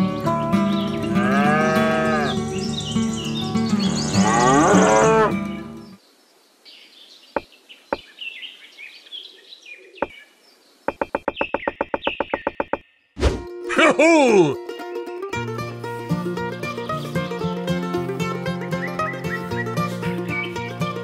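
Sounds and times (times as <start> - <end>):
cow mooing: 1.0 - 2.4, 4.0 - 5.5
faint bird chirps: 5.6 - 13.2
background music: 13.2 - 21.0.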